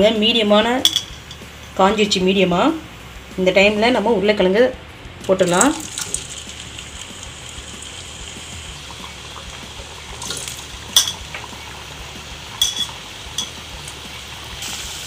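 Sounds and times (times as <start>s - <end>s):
potatoes sizzling in oil: 5.2s - 15.0s.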